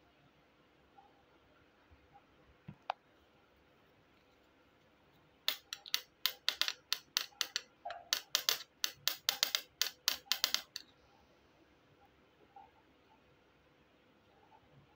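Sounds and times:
plastic toy pieces clicking: 5.5s - 10.9s.

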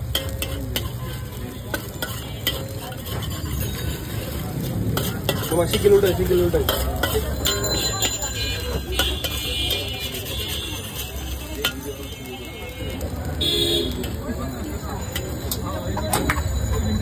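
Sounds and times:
metal spatula scraping wok: 0.0s - 12.8s
eggs sizzling in oil: 0.0s - 16.6s.

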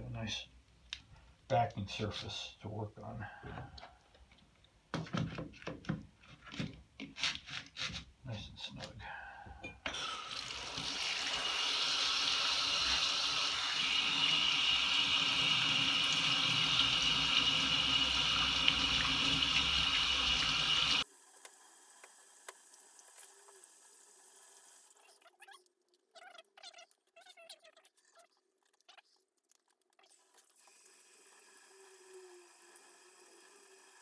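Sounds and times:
sink spray water running: 10.0s - 25.0s, 30.2s - 34.0s.

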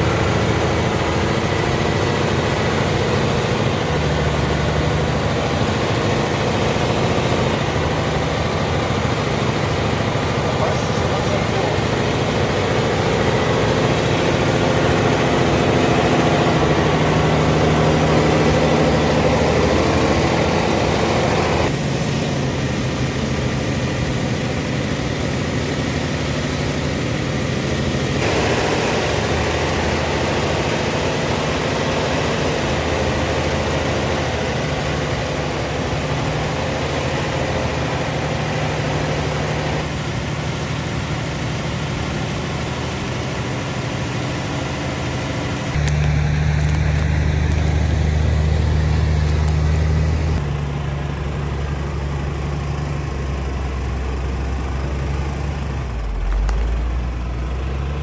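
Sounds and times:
diesel truck engine at low revs: 0.0s - 58.0s.

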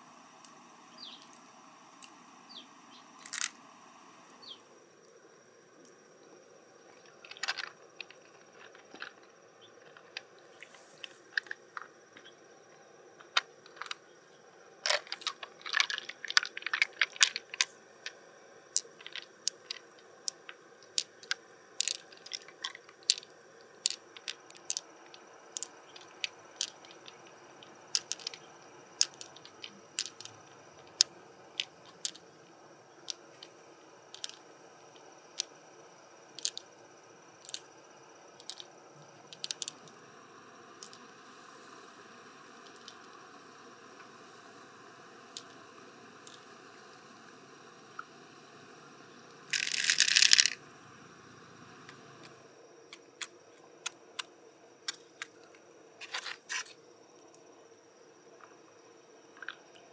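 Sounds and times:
mussel shell clicks: 18.8s - 27.2s, 27.9s - 32.2s, 34.1s - 34.4s, 36.4s - 36.7s, 37.4s - 37.7s, 39.4s - 39.9s, 49.5s - 50.6s.

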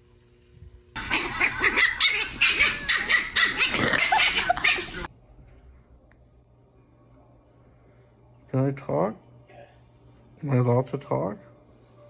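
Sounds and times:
small dog barking: 1.0s - 5.1s.

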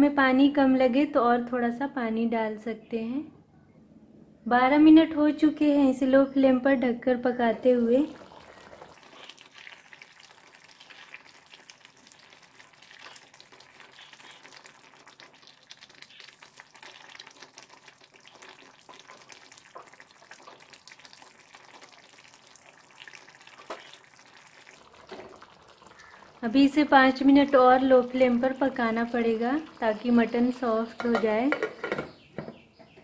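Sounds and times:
gravy sizzling faintly: 7.2s - 32.0s
wooden spatula stirring and scraping: 12.9s - 15.2s
spatula tap: 31.0s - 32.1s.

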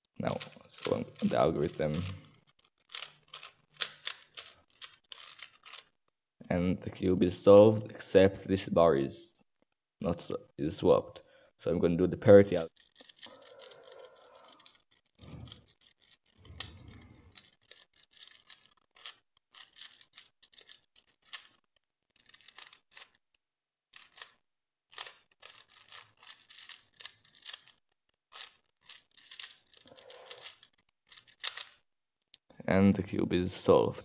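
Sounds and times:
plastic puzzle clicking and scraping: 0.2s - 6.0s, 12.2s - 31.8s.

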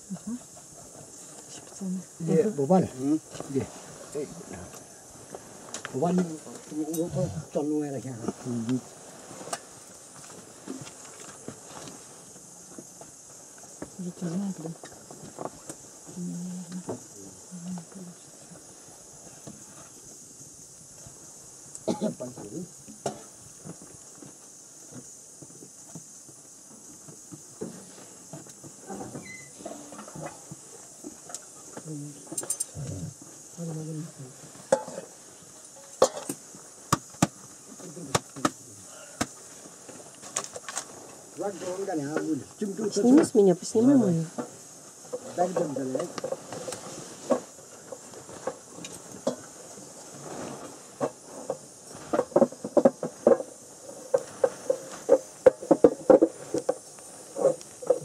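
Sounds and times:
steady hiss: 0.0s - 58.0s
wood fire crackling: 2.8s - 12.5s.

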